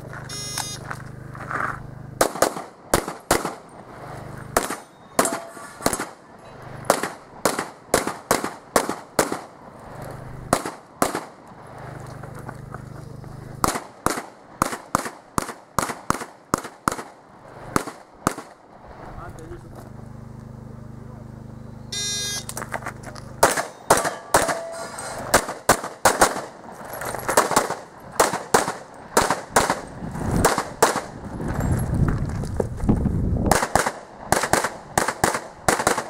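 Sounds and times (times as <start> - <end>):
low steady hum: 0.0 - 36.0
shot timer beep: 0.3 - 0.8, 4.8 - 5.6, 21.6 - 22.6
pistol shots: 2.2 - 3.7, 4.5 - 6.2, 6.8 - 9.6, 10.5 - 11.4, 13.6 - 18.6, 23.4 - 26.7, 27.3 - 31.2, 33.5 - 36.0.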